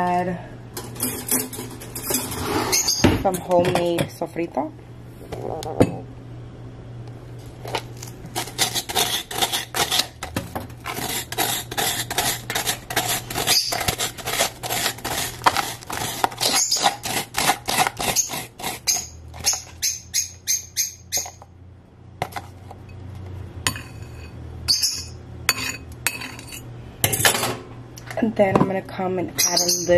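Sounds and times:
metal spoon scraping plastic container: 7.7 - 19.8.

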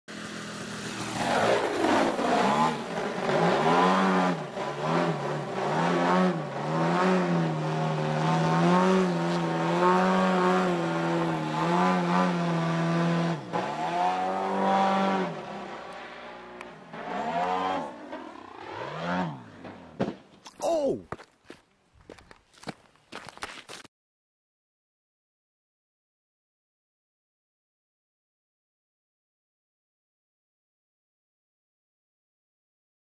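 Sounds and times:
model plane engine and propeller: 0.1 - 13.6, 14.3 - 19.9.

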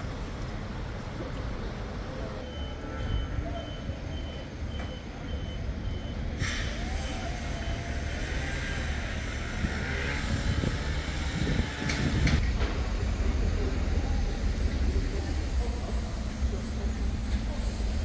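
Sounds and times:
low vehicle rumble: 0.0 - 18.0
reversing alarm beeping: 2.3 - 8.9, 9.8 - 11.2.

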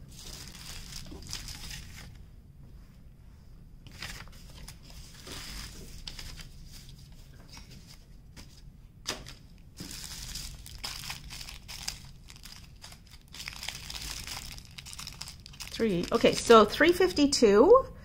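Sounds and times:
plastic bags crinkling: 0.0 - 2.2, 9.2 - 16.7.

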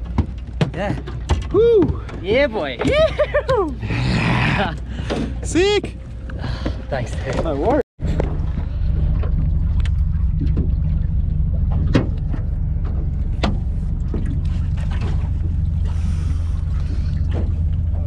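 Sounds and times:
boat motor idling: 4.6 - 18.0.

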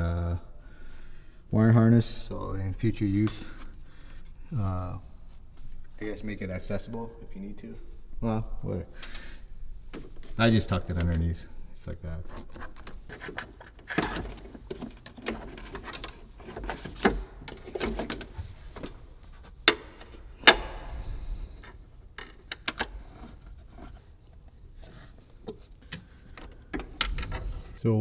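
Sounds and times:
clicks and taps of parts and tool: 21.6 - 23.0.

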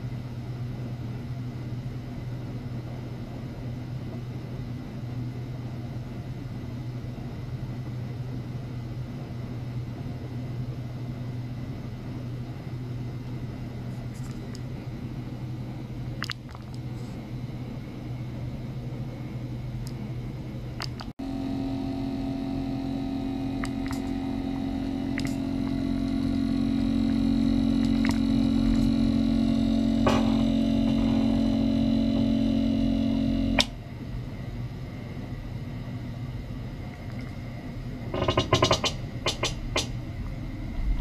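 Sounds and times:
electrical hum: 0.0 - 41.0
buzzing drone: 21.2 - 33.7.

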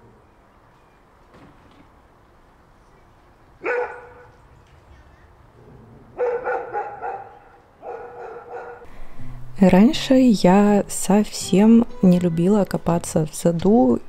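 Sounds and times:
dog barking: 3.6 - 4.3, 6.1 - 8.9.

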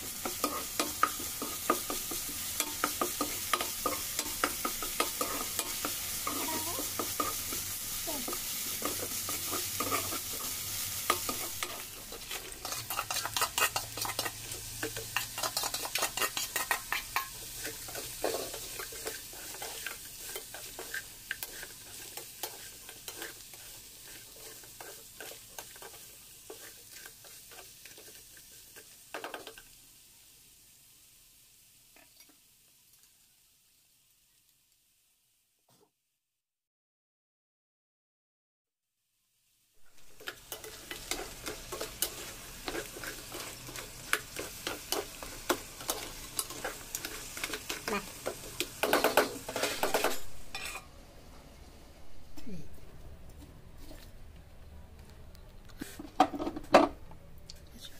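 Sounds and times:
masala sizzling in a pan: 0.0 - 36.0, 39.0 - 57.0
spoon scraping and clicking on pan: 0.2 - 7.7, 8.3 - 29.7, 40.0 - 50.9.

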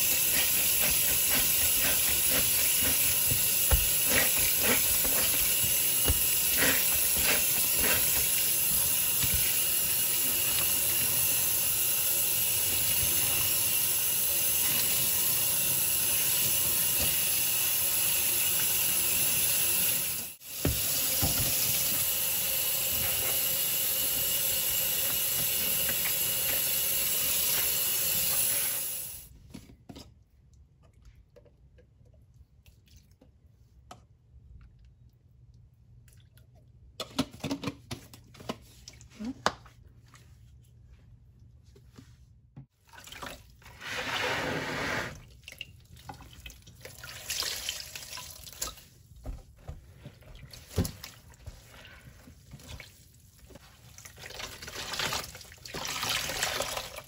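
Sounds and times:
sponges squishing and splashing: 0.0 - 11.3, 38.1 - 57.0
faucet running into sink: 0.0 - 29.2.

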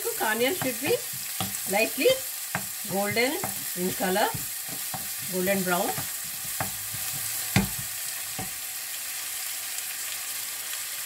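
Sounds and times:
onions sizzling in oil: 0.0 - 11.0
spatula knocking against pan: 0.4 - 1.8, 2.5 - 8.6.

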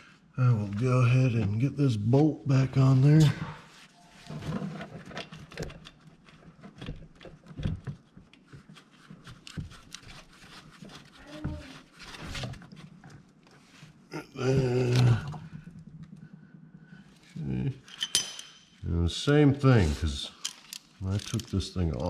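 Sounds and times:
short low vocal sound: 14.1 - 15.5
metal tools clicking and knocking: 17.8 - 18.8, 20.4 - 22.0.

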